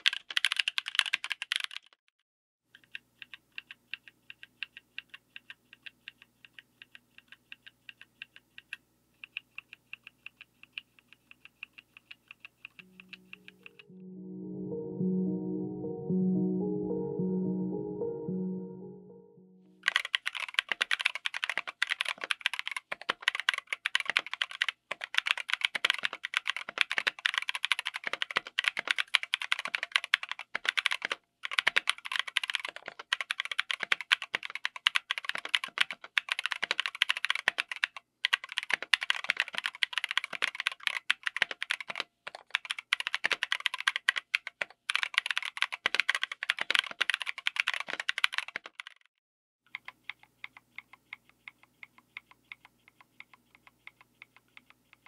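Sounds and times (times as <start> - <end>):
mechanical keyboard typing: 0.0 - 2.0, 2.8 - 13.9, 19.8 - 49.1, 49.7 - 55.0.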